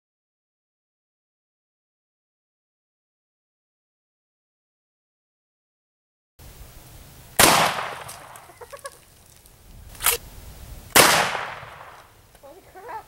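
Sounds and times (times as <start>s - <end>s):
gunshots with echo: 7.4s - 8.4s, 11.0s - 12.1s
sharp click: 10.0s - 10.2s.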